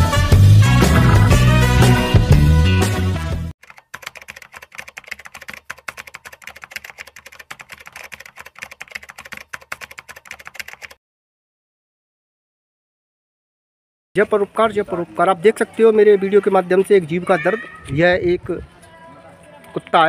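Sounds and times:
loud music: 0:00.0 - 0:03.5
keyboard typing clicks: 0:03.6 - 0:11.0.

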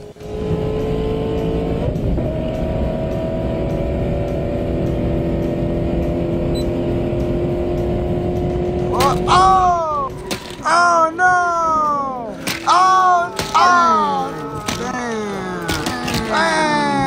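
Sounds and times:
racing engine accelerating: 0:00.0 - 0:09.5.

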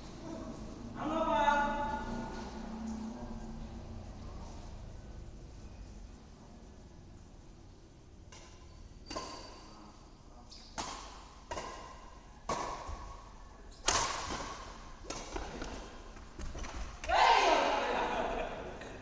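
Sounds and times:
rackets hitting shuttlecock: 0:08.3 - 0:09.7, 0:10.6 - 0:17.2.

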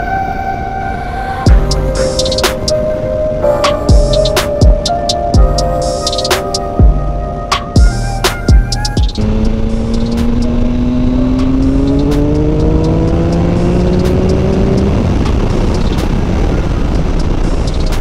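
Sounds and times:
wind and road noise: 0:00.0 - 0:18.0
motorcycle engine accelerating: 0:07.7 - 0:18.0.

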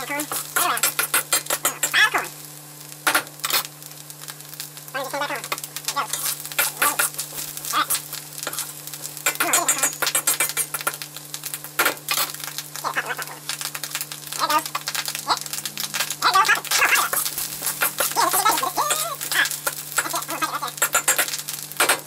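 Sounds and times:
corn popping and sizzling in butter: 0:00.0 - 0:22.0
metal utensil scraping a wok: 0:06.1 - 0:10.8, 0:16.8 - 0:19.8.

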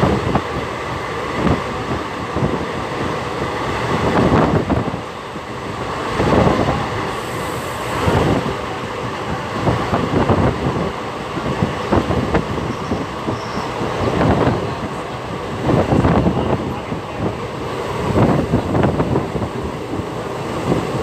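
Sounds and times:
train wheels rumbling on rails: 0:00.0 - 0:21.0.

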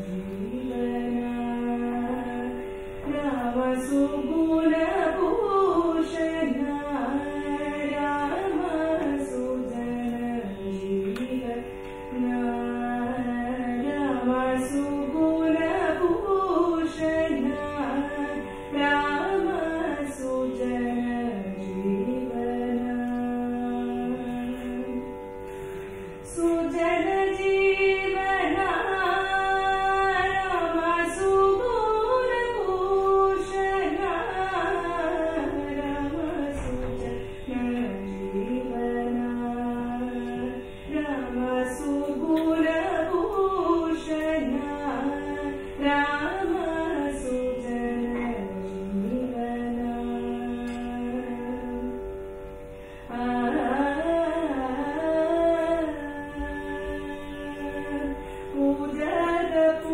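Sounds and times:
person singing ornamented melody: 0:03.2 - 0:11.6, 0:37.5 - 0:51.8.

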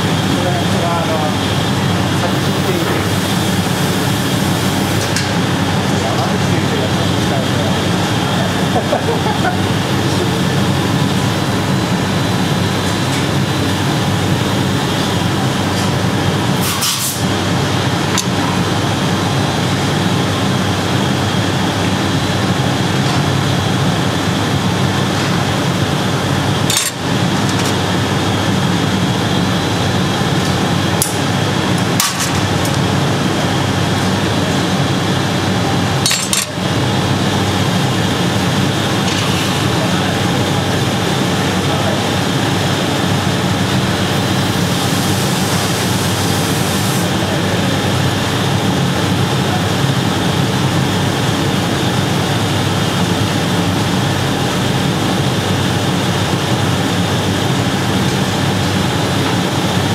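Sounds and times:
furnace and burner blowers roaring: 0:00.0 - 0:59.9
metal tools clinking: 0:36.0 - 0:36.6.

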